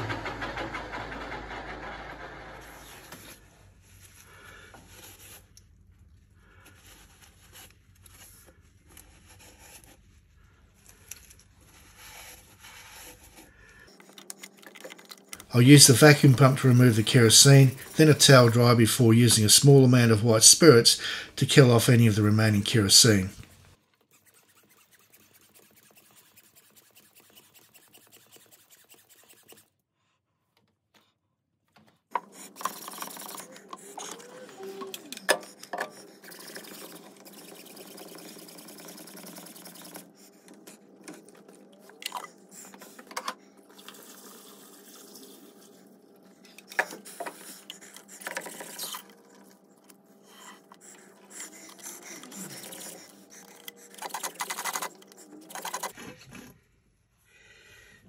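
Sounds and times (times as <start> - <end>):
gloved hand scraping metal gears: 24.1 - 29.8, 32.2 - 41.4, 46.6 - 56.1
liquid trickling through tube: 43.7 - 45.7.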